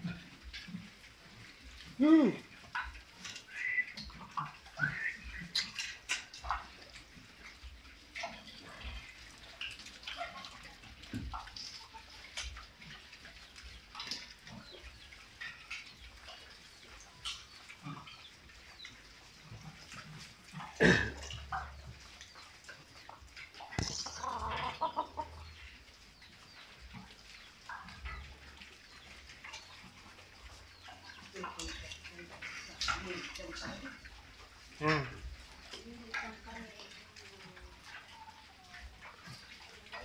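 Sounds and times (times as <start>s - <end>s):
pigs chewing and snuffling: 0.0s - 40.0s
rustling of leaves: 0.0s - 40.0s
rapid animal calls: 1.6s - 6.8s, 20.5s - 35.6s.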